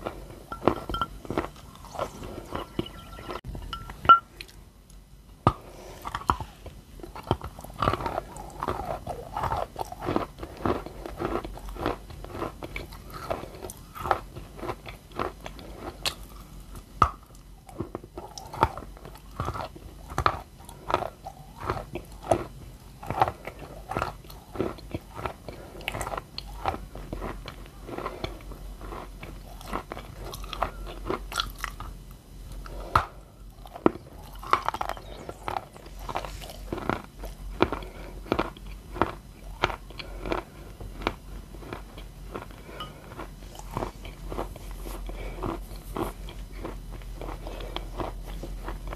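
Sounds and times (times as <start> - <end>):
biting and chewing chalk: 5.5 - 16.3, 32.6 - 48.9.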